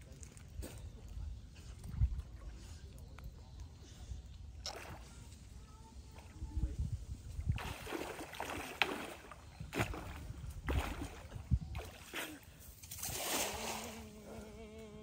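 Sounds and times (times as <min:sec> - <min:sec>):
water sloshing and splashing: 0:04.5 - 0:14.1.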